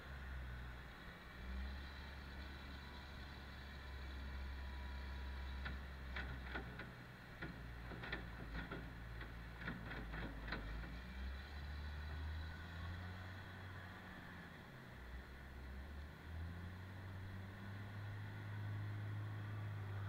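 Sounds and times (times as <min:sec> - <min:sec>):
sharp knocks and clicks: 0:05.5 - 0:11.0.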